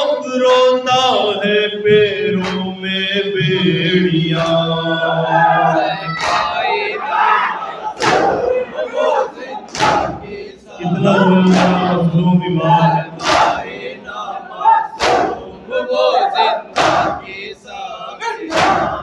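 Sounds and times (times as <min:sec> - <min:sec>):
group chanting: 0:00.0 - 0:19.0
hands slapping chests in unison: 0:06.1 - 0:06.7, 0:08.0 - 0:08.4, 0:09.7 - 0:10.2, 0:11.4 - 0:12.0, 0:13.2 - 0:13.7, 0:15.0 - 0:15.4, 0:16.7 - 0:17.3, 0:18.5 - 0:19.0.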